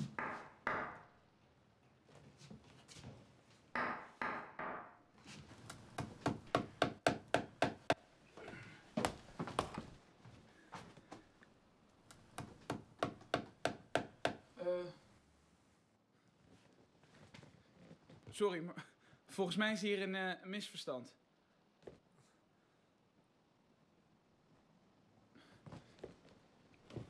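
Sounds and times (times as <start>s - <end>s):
scattered knocks: 0.0s - 1.0s.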